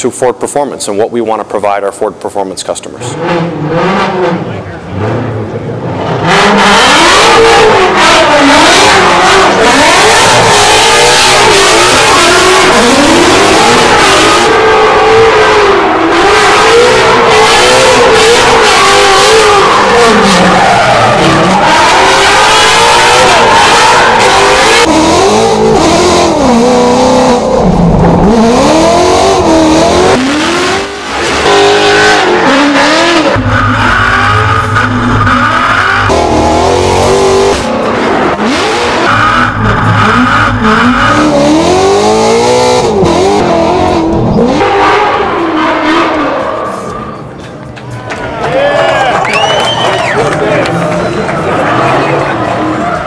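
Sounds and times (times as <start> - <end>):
car engine revving hard: 3.0 - 47.2
tire squeal and skidding: 33.2 - 36.1, 39.0 - 41.3, 44.4 - 48.0.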